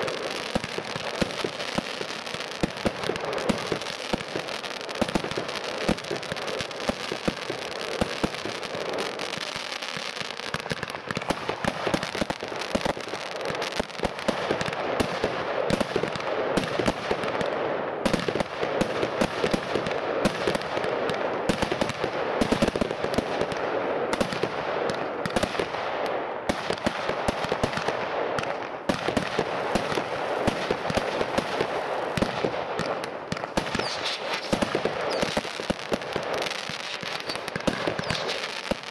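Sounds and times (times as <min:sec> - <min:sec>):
firework shots and bursts: 0:00.0 - 0:38.9.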